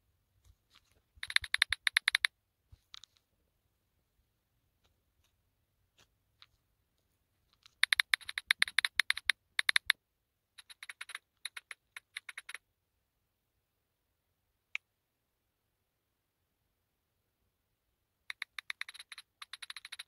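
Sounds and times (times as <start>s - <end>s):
phone keyboard clicks: 1.2s - 2.3s, 7.6s - 10.0s, 10.6s - 12.6s, 18.3s - 20.0s.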